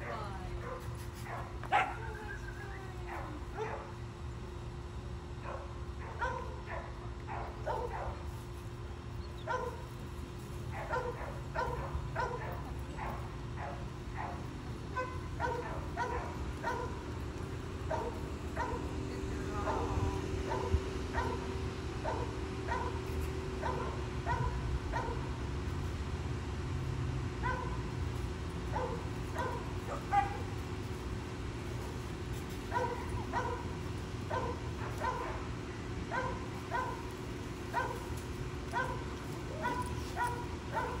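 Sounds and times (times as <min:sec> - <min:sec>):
steady low hum: 0:00.0 - 0:41.0
dog barking: 0:00.6 - 0:02.1, 0:03.1 - 0:03.9, 0:05.4 - 0:08.2, 0:09.4 - 0:09.8, 0:10.7 - 0:17.0, 0:17.9 - 0:19.0, 0:19.7 - 0:23.0, 0:23.6 - 0:25.3, 0:27.4 - 0:27.8, 0:28.7 - 0:30.5, 0:32.7 - 0:33.7, 0:34.3 - 0:35.5, 0:36.1 - 0:37.1, 0:37.7 - 0:38.1, 0:38.7 - 0:41.0.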